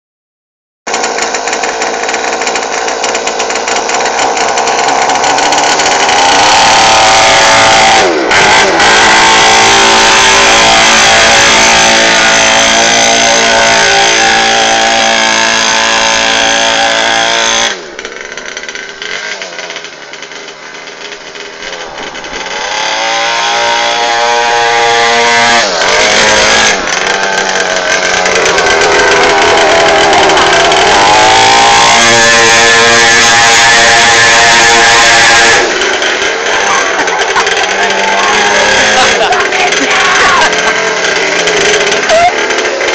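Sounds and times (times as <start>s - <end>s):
dirt bike engine revving: 0.9s - 42.9s.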